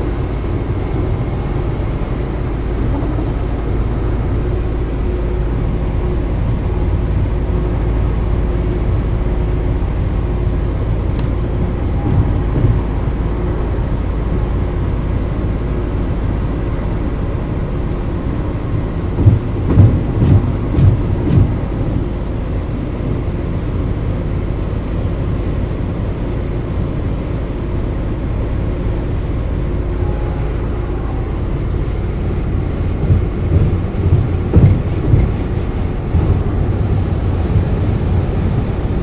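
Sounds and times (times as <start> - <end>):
car road and engine rumble: 0.0 - 39.0
thumps: 33.0 - 36.4.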